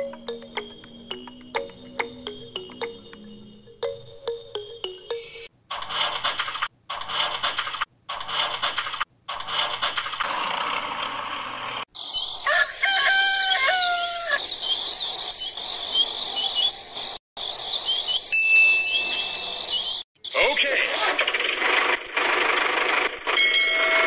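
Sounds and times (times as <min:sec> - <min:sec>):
music: 0:00.0 - 0:05.5
steady high tone: 0:00.0 - 0:05.5
small birds chirping: 0:11.9 - 0:20.7
rooster crowing: 0:12.4 - 0:14.5.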